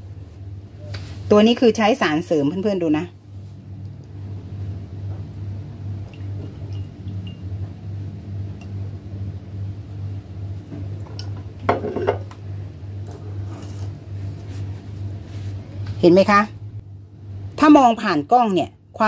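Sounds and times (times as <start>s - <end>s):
wine pouring into a glass: 6.2s - 7.5s.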